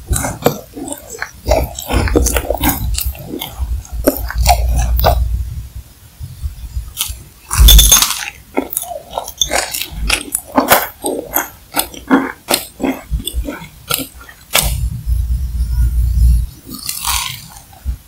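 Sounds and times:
chewing with small crackles: 0.0s - 5.4s, 6.9s - 14.9s, 16.4s - 17.9s
loud crunching bite: 0.1s - 5.2s, 7.0s - 14.8s, 16.7s - 17.8s.

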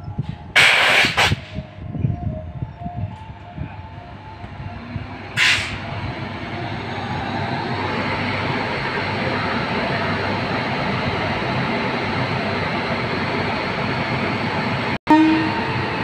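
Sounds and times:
train wheels rushing on rails: 0.1s - 1.9s, 3.1s - 16.0s
sharp hiss burst: 0.6s - 1.6s.

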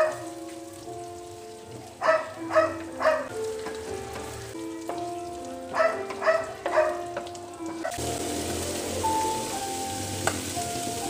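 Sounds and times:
background music: 0.0s - 11.0s
plucked notes: 0.2s - 11.0s
food sizzling in a pan: 3.3s - 11.0s.

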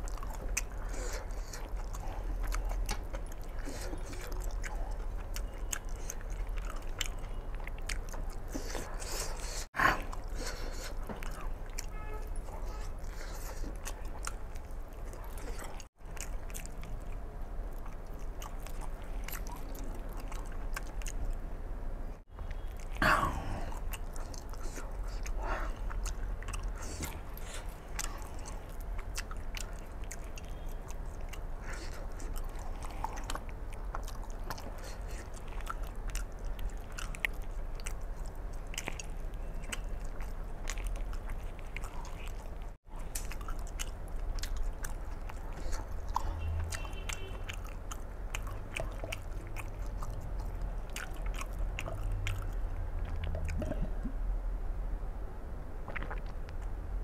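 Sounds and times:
man chewing with wet smacks: 0.0s - 21.5s, 22.1s - 54.2s, 55.8s - 56.8s.

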